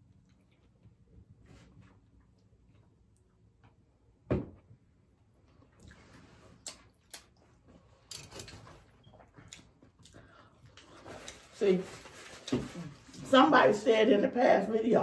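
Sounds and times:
light clicks and rustling of food: 0:05.6 - 0:13.2.

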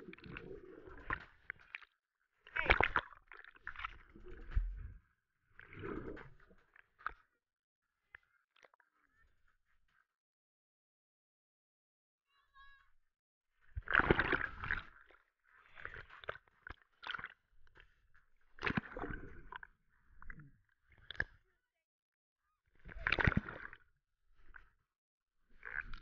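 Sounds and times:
water splashing and sloshing: 0:00.0 - 0:07.3, 0:13.7 - 0:21.4, 0:22.8 - 0:24.8, 0:25.4 - 0:26.0.

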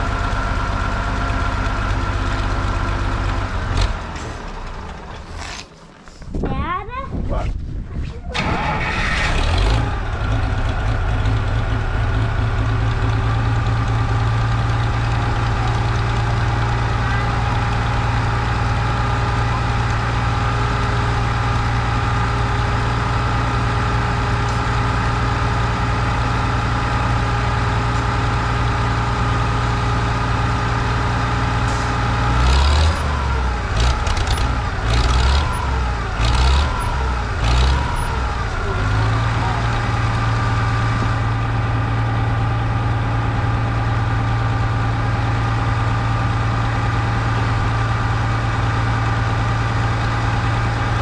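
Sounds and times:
tractor engine idling: 0:00.0 - 0:06.4, 0:08.4 - 0:51.0
engine revving in short bursts: 0:08.4 - 0:09.9.

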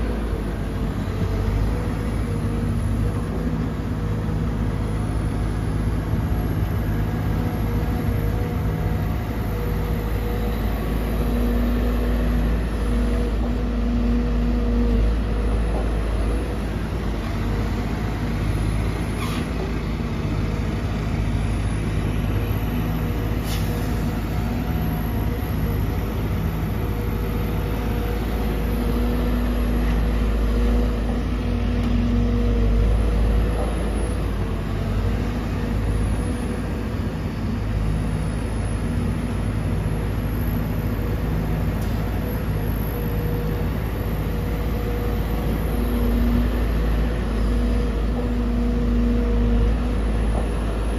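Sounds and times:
excavator diesel engine droning: 0:00.0 - 0:50.9
high-pitched hydraulic whine: 0:18.4 - 0:19.7, 0:21.3 - 0:31.1.

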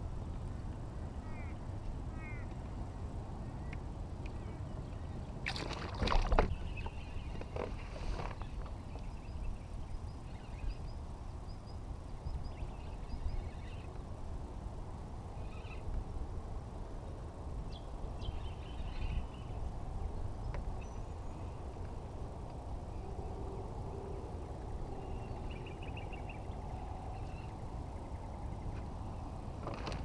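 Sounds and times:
wind and water rumble: 0:00.0 - 0:30.0
faint bird chirps: 0:06.5 - 0:14.0.

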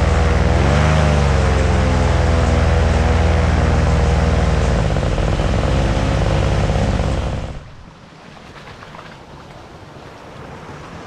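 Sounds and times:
small boat engine running: 0:00.0 - 0:07.8
water rushing: 0:00.0 - 0:11.0.

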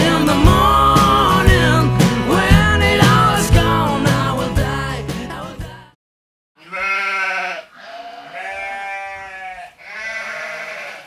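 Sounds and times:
music: 0:00.0 - 0:06.0
long bleats: 0:06.6 - 0:11.0.

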